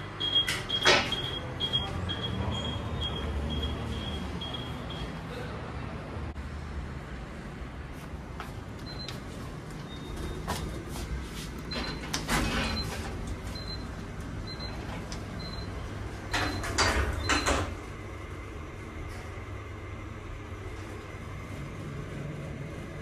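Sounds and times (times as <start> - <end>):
high electronic beeps: 0.2 - 5.2
lift doors sliding shut: 11.6 - 13.8, 14.5 - 17.9.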